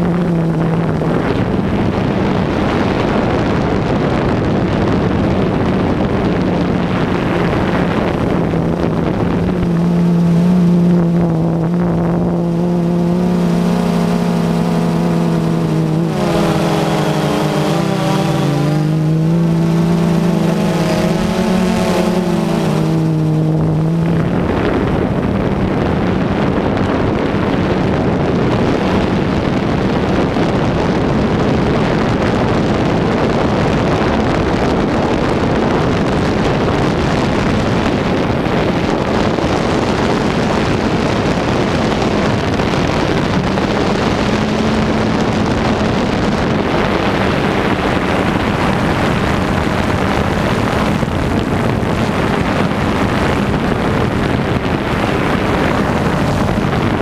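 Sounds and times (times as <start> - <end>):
wind rushing across microphone: 0.0 - 57.0
drone motors humming: 4.3 - 26.4, 38.2 - 57.0.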